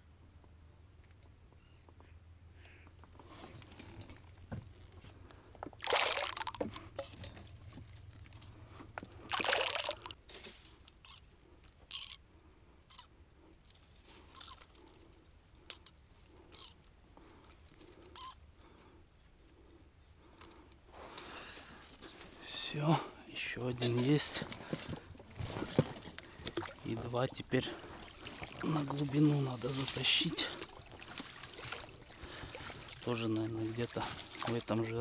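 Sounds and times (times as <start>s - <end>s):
small ticks and drips: 5.2s - 10.2s, 12.8s - 18.9s, 26.0s - 34.8s
water splashing and sloshing: 5.6s - 11.2s, 23.9s - 35.0s.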